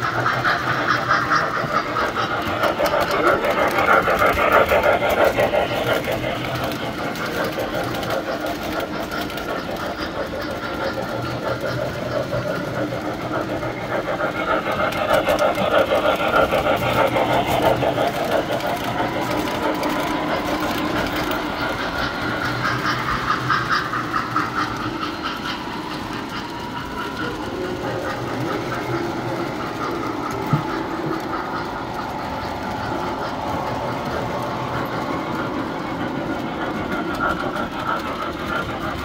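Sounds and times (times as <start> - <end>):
metal wheels clattering on rails: 0.0 - 39.0.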